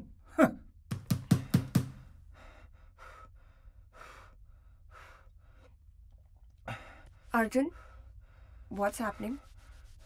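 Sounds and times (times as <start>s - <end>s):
man breathing heavily: 1.4s - 5.9s, 6.6s - 8.7s.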